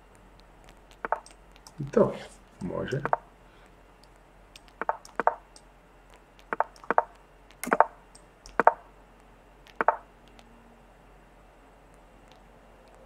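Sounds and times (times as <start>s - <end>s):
chess move clicks: 0.7s - 2.0s, 2.6s - 3.2s, 4.0s - 5.7s, 6.4s - 8.8s, 9.7s - 10.4s
faint sharp ticks: 4.0s - 5.7s.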